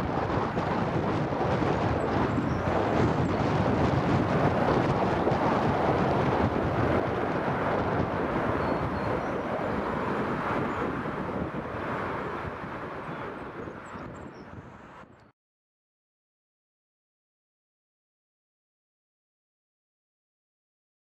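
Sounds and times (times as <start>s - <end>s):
jet engines at takeoff: 0.0s - 15.3s.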